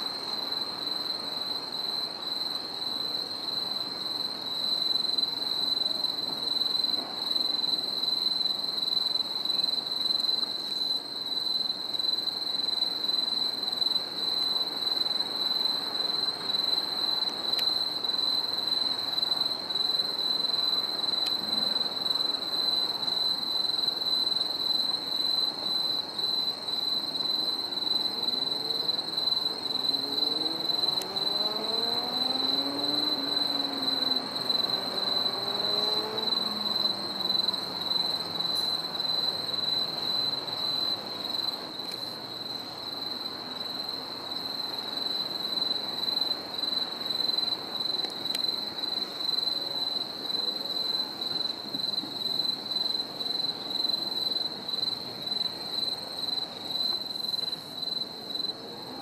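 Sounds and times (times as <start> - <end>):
crickets chirring: 0.0 - 59.0
engine rising in pitch: 30.0 - 37.0.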